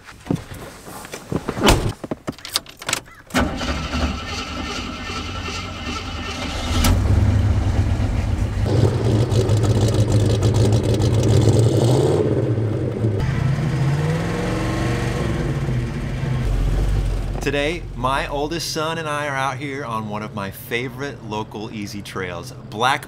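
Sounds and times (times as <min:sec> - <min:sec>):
car engine starting and revving: 0:03.3 - 0:18.6.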